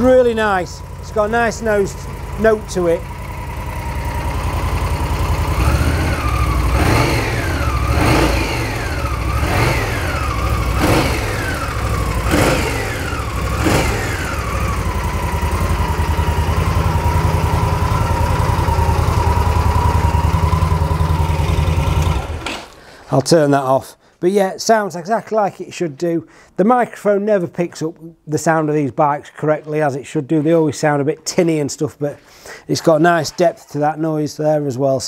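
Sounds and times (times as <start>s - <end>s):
motorcycle engine idling: 0.0s - 22.4s
motorcycle engine revving: 0.0s - 22.7s.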